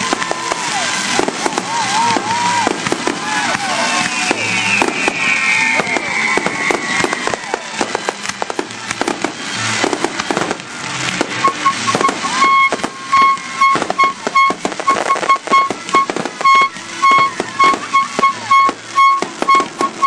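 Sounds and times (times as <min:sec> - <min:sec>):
fireworks bangs and crackling: 0:00.0 - 0:20.0
whistling firework shell: 0:03.8 - 0:10.6, 0:11.3 - 0:20.0
high beeping tone: 0:11.4 - 0:20.0.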